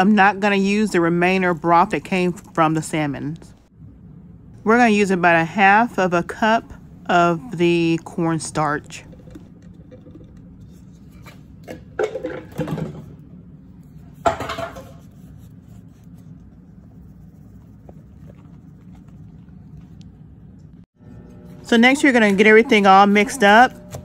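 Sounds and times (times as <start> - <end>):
low steady hum: 0.0 - 24.0
kitchen utensils clicking and knocking: 11.2 - 13.2.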